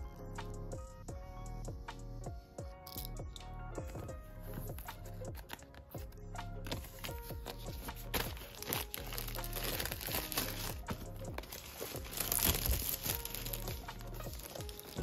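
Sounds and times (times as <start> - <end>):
background music: 0.0 - 15.0
plastic shrink-wrap crinkling: 6.6 - 15.0.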